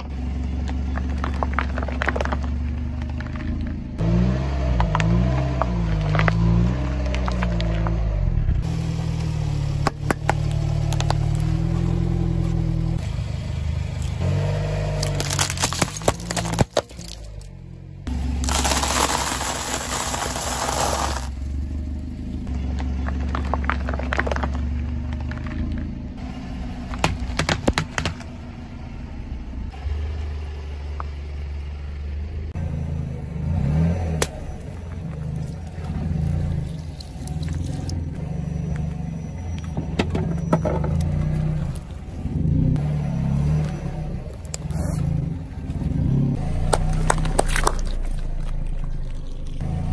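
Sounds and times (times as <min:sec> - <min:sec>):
car engine humming: 0:00.0 - 0:49.9
tyre crushing small objects: 0:00.6 - 0:03.8, 0:14.8 - 0:21.4, 0:22.6 - 0:25.9, 0:46.5 - 0:49.9.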